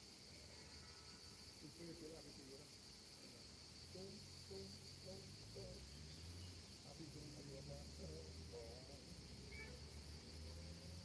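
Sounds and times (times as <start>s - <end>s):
crickets chirring: 0.0s - 11.0s
faint distant voices: 0.0s - 11.0s.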